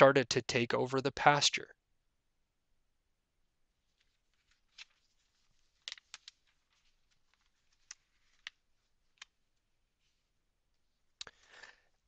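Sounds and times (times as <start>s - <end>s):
faint irregular clicks: 3.9s - 9.6s.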